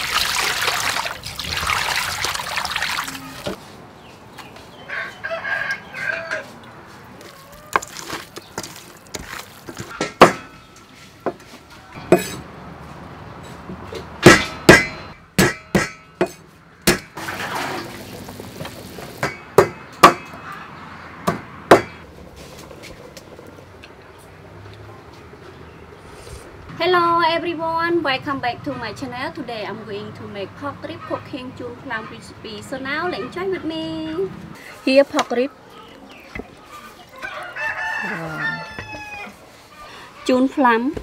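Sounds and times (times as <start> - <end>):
rooster crowing: 4.9 - 7.9, 37.1 - 39.5
cleaver chopping on wood: 14.2 - 17.2, 21.3 - 22.0.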